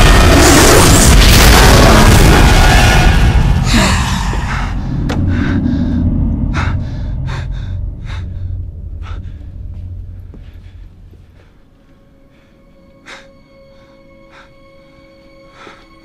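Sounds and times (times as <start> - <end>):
boom: 0.0 - 7.1
low rumble: 0.0 - 11.6.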